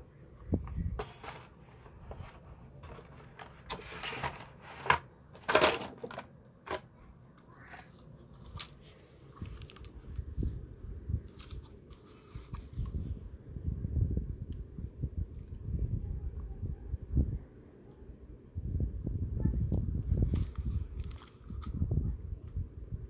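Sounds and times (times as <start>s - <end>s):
plastic packaging crinkling: 7.6s - 10.3s.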